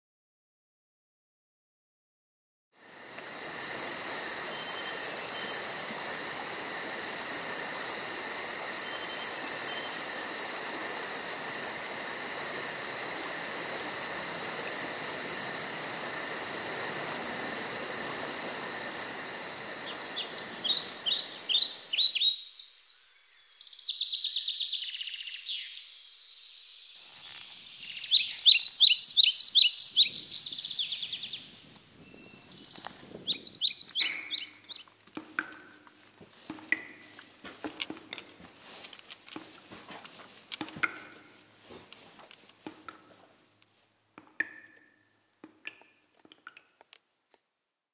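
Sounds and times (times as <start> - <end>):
insects trilling: 2.8 - 41.6
songbirds chirping: 19.5 - 41.5.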